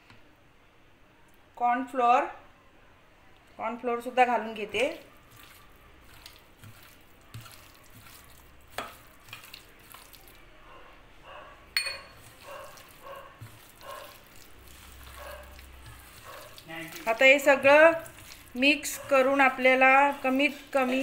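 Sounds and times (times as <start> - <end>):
hand squishing wet chicken: 4.8 - 10.5, 12.1 - 21.0.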